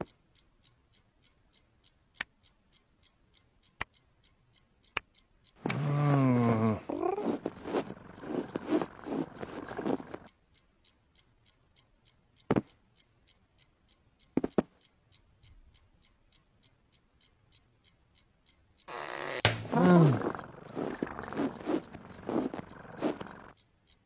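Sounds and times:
sharp clicks: 0:00.0 - 0:15.2, 0:16.0 - 0:24.0
faint even ticks: 0:00.0 - 0:24.0
cat sound: 0:05.7 - 0:10.1, 0:18.9 - 0:23.2
rubbing and scratching on bedcovers: 0:06.3 - 0:10.2, 0:19.7 - 0:23.4.

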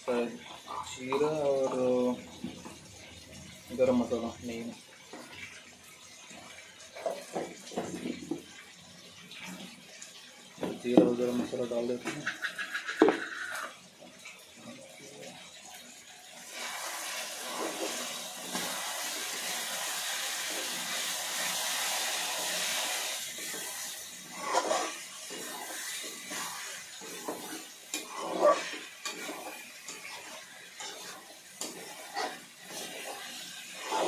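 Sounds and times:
stirring scrapes and knocks in pan: 0:07.0 - 0:08.5, 0:16.6 - 0:19.4, 0:21.7 - 0:34.0
chicken sizzling in oil: 0:15.9 - 0:34.0.

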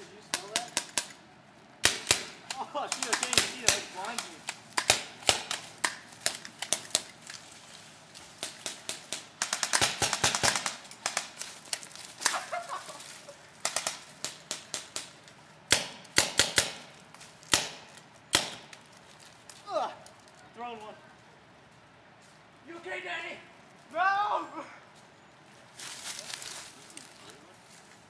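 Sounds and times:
sharp cracks: 0:00.1 - 0:01.2, 0:01.8 - 0:07.4, 0:08.1 - 0:20.4.

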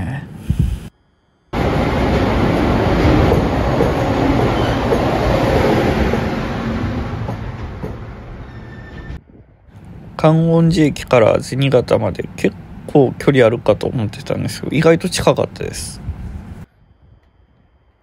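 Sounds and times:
train wheels on rails: 0:01.6 - 0:09.2
freight train passing: 0:01.6 - 0:16.7.

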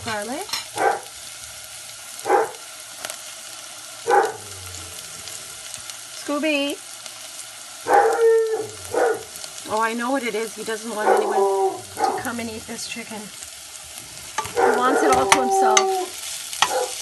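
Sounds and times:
food sizzling in hot oil: 0:00.0 - 0:17.0
dog barking sharply: 0:00.8 - 0:01.0, 0:02.2 - 0:02.6, 0:04.1 - 0:04.4, 0:07.9 - 0:09.3, 0:16.7 - 0:17.0.

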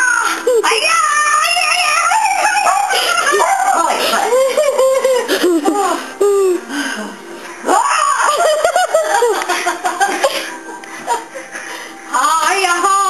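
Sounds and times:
people laughing: 0:02.9 - 0:06.0, 0:08.2 - 0:11.8.

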